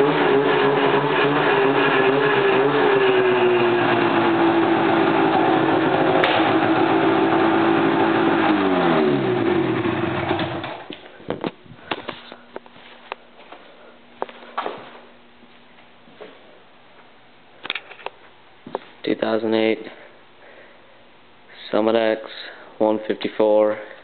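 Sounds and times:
snowmobile engine winding down: 0:00.0 - 0:10.8.

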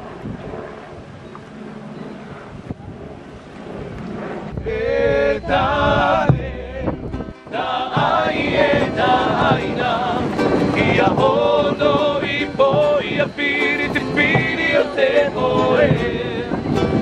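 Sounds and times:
ukulele: 0:04.5 - 0:17.0
men singing: 0:04.6 - 0:17.0.

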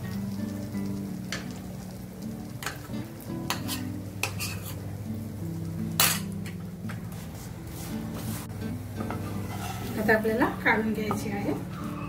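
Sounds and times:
light sizzle: 0:00.0 - 0:12.0
metal utensil clinking on pan: 0:03.5 - 0:04.8, 0:06.0 - 0:06.6.

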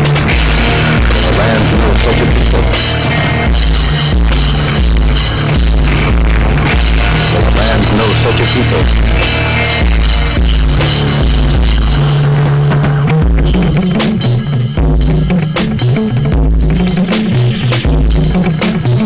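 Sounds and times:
screamo band playing: 0:00.2 - 0:12.2
drum hits: 0:00.3 - 0:11.9.

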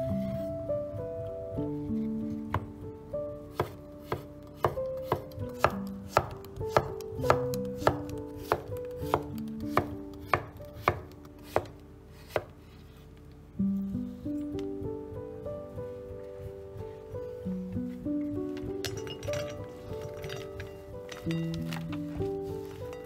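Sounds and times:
knife slicing vegetables: 0:03.5 - 0:12.5.

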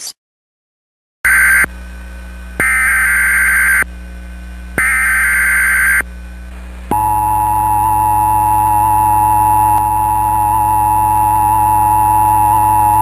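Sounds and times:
low hum: 0:01.3 - 0:13.0
screechy digital data tones: 0:04.8 - 0:06.0.

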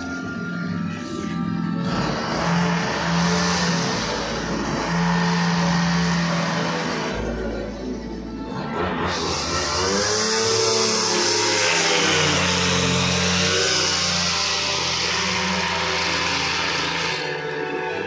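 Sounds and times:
brush cutter engine revving: 0:00.0 - 0:18.0.

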